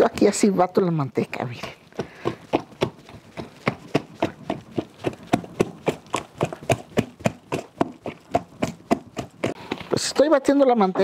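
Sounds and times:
lard slapping in bowl: 0:01.6 - 0:09.6.

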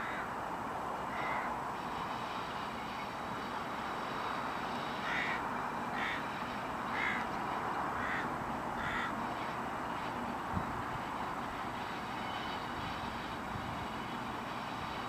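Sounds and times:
distant diesel locomotives running: 0:00.0 - 0:15.0
bird harsh short calls: 0:05.0 - 0:06.2, 0:06.9 - 0:07.2.

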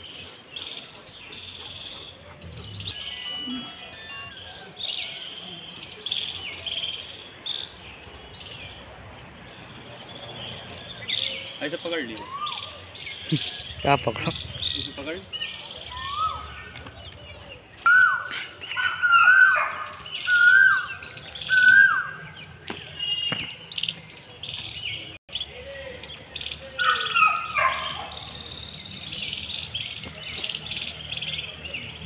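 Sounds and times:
birds chirping: 0:00.0 - 0:32.0
loud whistled bird calls: 0:10.6 - 0:16.7, 0:17.7 - 0:24.8, 0:25.4 - 0:31.9.

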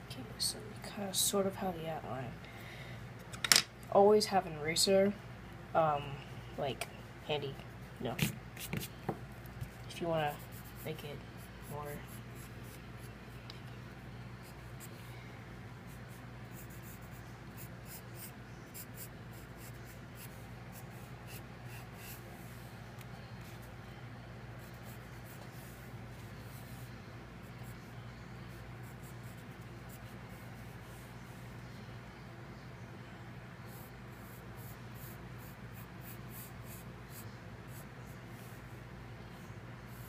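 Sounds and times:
steady low hum: 0:00.0 - 0:40.0
pencil scratching on paper: 0:10.3 - 0:13.1, 0:15.9 - 0:22.2, 0:33.7 - 0:37.9.

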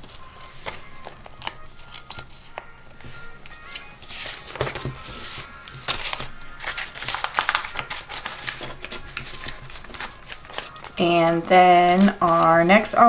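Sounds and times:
paper rustling and crinkling: 0:00.0 - 0:13.0.

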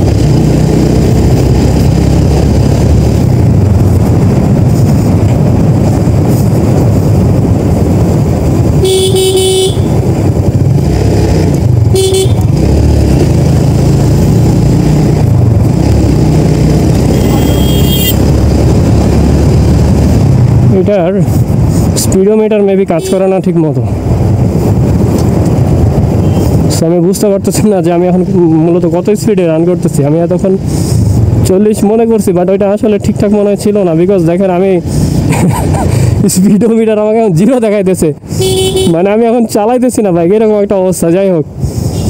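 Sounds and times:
motorcycle engine running: 0:00.0 - 0:21.6
wind rush on microphone: 0:00.0 - 0:42.0
vehicle horn: 0:08.8 - 0:10.0, 0:11.9 - 0:12.6, 0:17.1 - 0:18.2, 0:23.0 - 0:23.3, 0:38.3 - 0:39.0.

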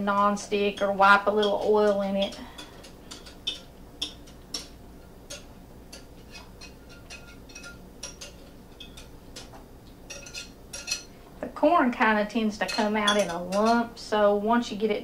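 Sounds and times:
whisk scraping glass pitcher: 0:05.3 - 0:09.5, 0:10.1 - 0:11.1.

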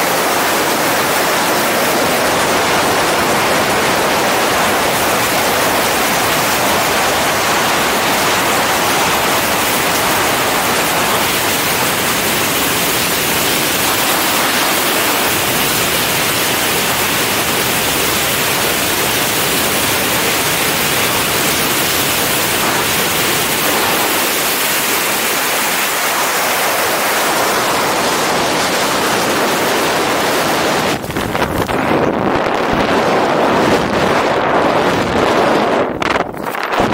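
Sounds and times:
wind rushing over microphone: 0:00.0 - 0:36.9.

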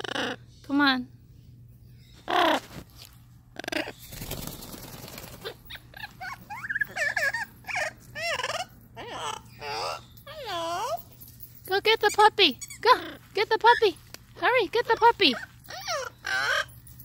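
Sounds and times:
parrot squawking: 0:00.0 - 0:00.5, 0:05.4 - 0:11.0, 0:14.9 - 0:16.7
wingbeats fluttering: 0:03.9 - 0:05.8.

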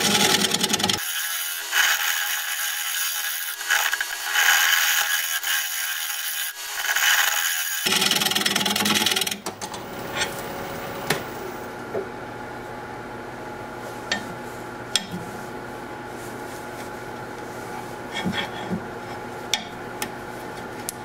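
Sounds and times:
gouge scraping wood on lathe: 0:00.0 - 0:11.4
lathe running: 0:00.0 - 0:11.8.

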